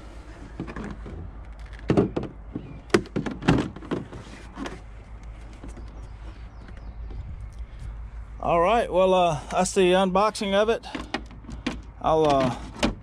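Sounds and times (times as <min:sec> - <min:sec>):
plastic knocks and clunks: 0:00.5 - 0:04.8, 0:10.9 - 0:13.0.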